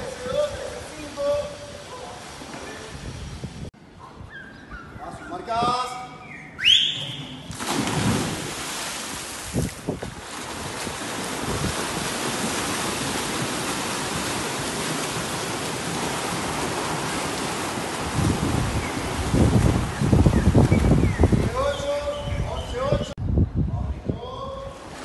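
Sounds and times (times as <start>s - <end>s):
swimmers splashing: 0.0s - 3.5s, 6.7s - 21.6s
low thuds hitting water: 7.5s - 21.5s.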